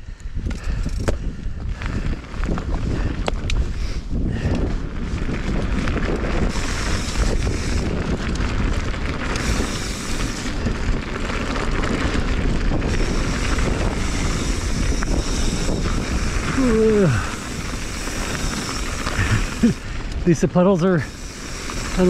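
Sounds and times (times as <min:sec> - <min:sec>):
bike tyres on dirt: 0:00.0 - 0:22.0
wind buffeting microphone: 0:00.0 - 0:22.0.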